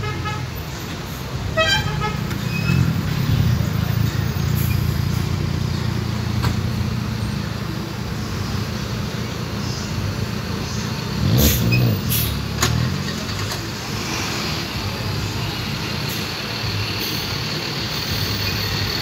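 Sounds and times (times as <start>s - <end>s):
bus engine rumbling: 0.0s - 19.0s
horn toot: 1.5s - 3.0s, 11.2s - 12.4s.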